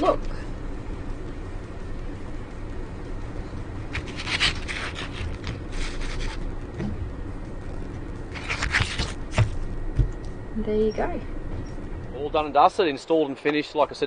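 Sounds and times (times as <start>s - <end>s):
low background rumble: 0.0s - 14.0s
paper rustling on wooden table: 4.0s - 6.4s, 8.4s - 9.5s.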